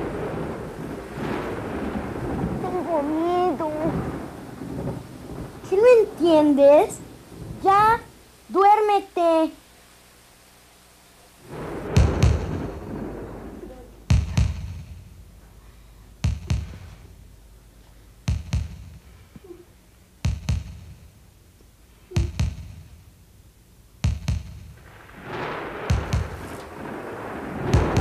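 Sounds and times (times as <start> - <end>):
heavy echoing double thuds: 11.4 - 21.4, 22.1 - 23.2, 24.0 - 28.0.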